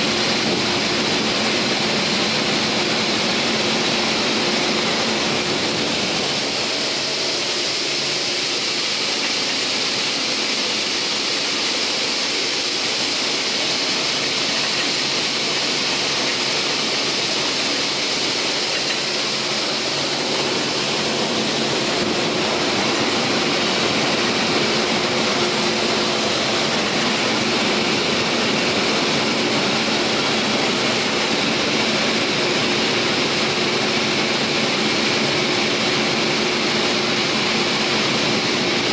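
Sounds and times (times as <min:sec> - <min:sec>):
saw blades spinning hiss: 0:03.8 - 0:28.5.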